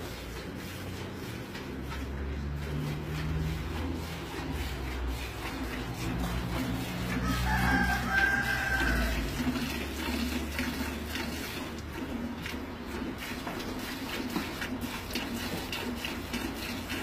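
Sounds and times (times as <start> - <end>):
milk squirting into a pail: 2.7 - 17.0
rooster crowing: 7.1 - 9.4.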